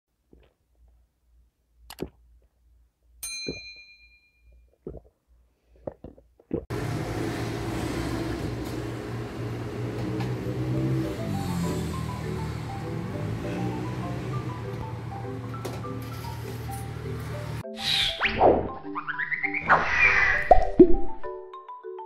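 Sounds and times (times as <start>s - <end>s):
ringing clink: 3.2s - 4.5s
sipping through a straw: 4.7s - 6.7s.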